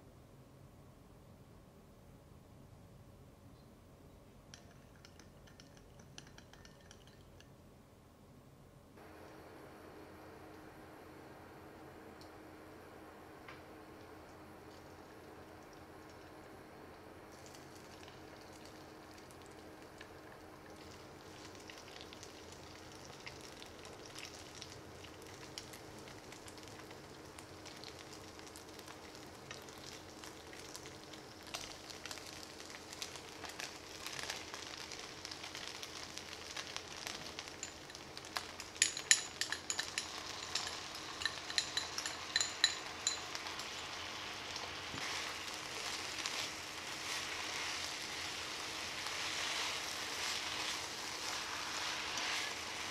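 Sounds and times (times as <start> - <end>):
food sizzling in a frying pan: 14.1 - 52.9
sharp ringing clinks: 38.8 - 43.4.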